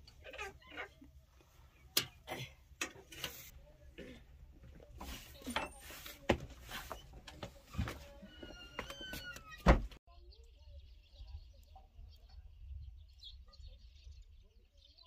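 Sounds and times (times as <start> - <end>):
metal pots clicking and knocking: 0.0 - 4.4.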